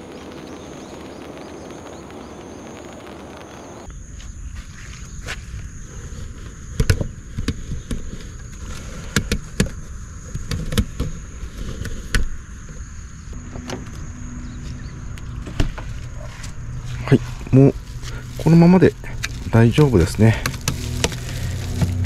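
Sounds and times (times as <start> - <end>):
plastic ducts knocking and scraping: 18.0 - 22.0.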